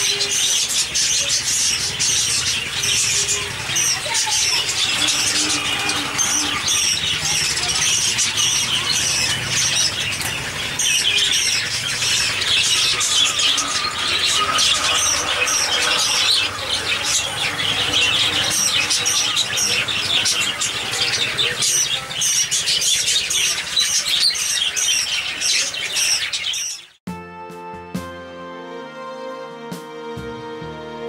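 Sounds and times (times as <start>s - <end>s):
budgerigars chirping and squawking: 0.0s - 27.0s.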